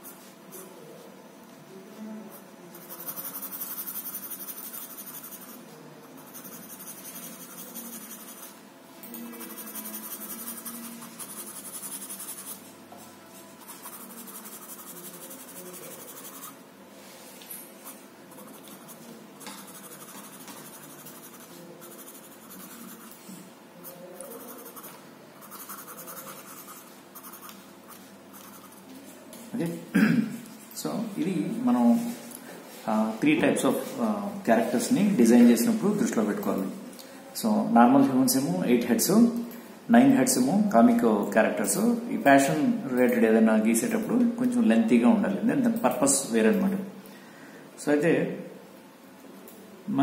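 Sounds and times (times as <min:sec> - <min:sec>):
pencil scratching on paper: 0:02.7 - 0:08.6, 0:09.2 - 0:12.7, 0:13.4 - 0:16.6, 0:17.8 - 0:23.2, 0:23.8 - 0:28.9.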